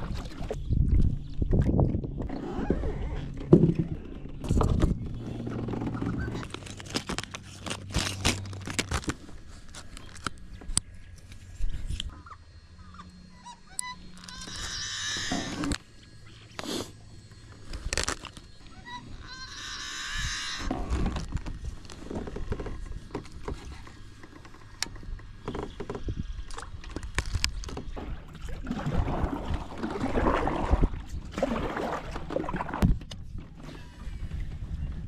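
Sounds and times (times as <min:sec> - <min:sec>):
reeds scraping against kayak hull: 0:02.3 - 0:10.3, 0:27.2 - 0:34.2
plastic package crinkling: 0:06.4 - 0:10.3.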